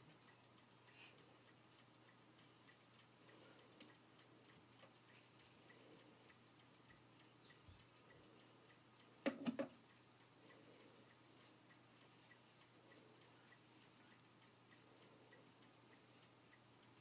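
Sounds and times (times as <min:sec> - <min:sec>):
soft regular ticking: 0:00.0 - 0:17.0.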